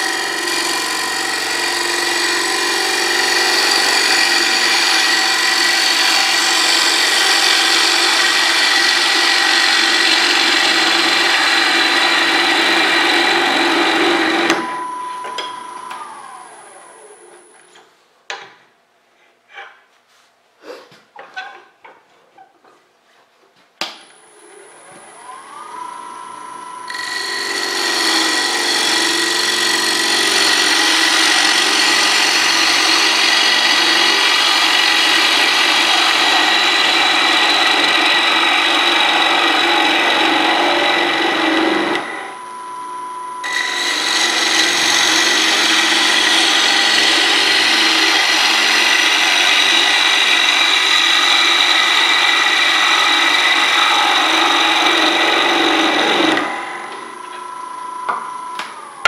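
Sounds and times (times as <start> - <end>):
gouge shearing wood: 0.0 - 14.8, 26.9 - 42.2, 43.4 - 56.6
lathe motor whine: 0.0 - 17.7, 24.2 - 59.0.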